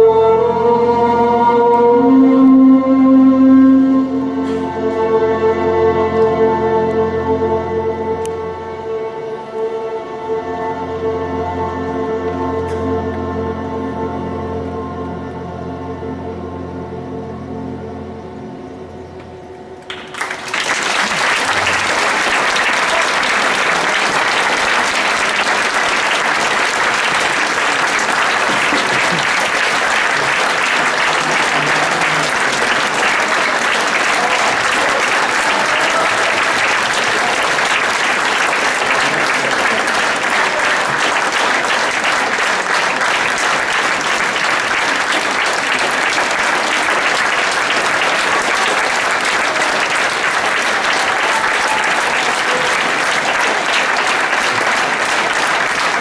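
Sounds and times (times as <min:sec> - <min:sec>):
audience applauding: 0:19.8 - 0:56.0.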